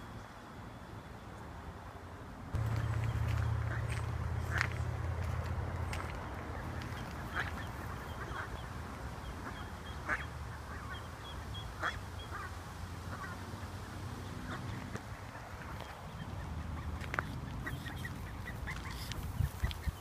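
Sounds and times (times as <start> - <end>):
low rumble: 2.6 - 7.2
ducks quacking: 2.6 - 20.0.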